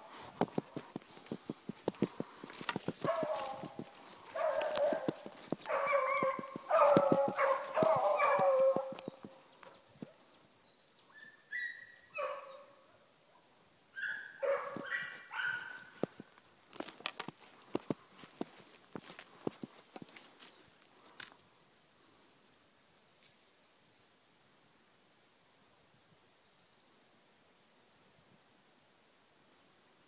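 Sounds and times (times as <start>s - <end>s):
hounds baying: 0.2s - 9.9s, 14.0s - 16.2s.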